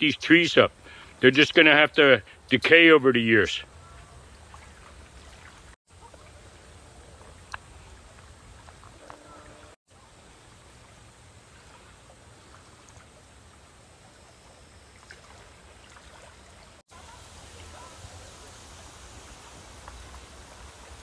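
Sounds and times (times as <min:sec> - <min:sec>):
steady hiss: 0:16.9 - 0:21.0.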